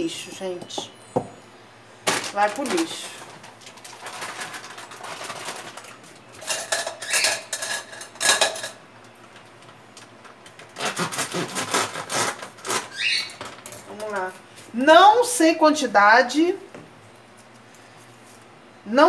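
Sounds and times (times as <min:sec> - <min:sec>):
kitchen utensils clinking: 0:02.1 - 0:09.4.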